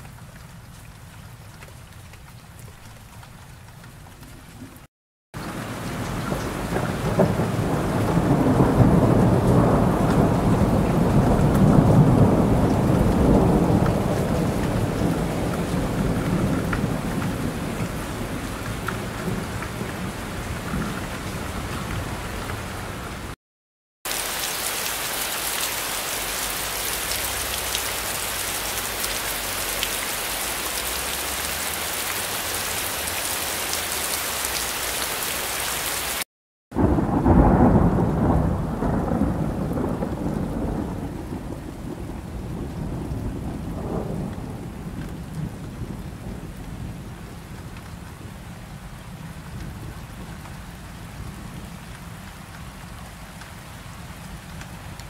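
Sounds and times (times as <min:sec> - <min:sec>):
heavy rain: 0:00.0 - 0:23.4, 0:24.1 - 0:55.0
rolling thunder rumble: 0:06.0 - 0:23.4, 0:36.8 - 0:47.4.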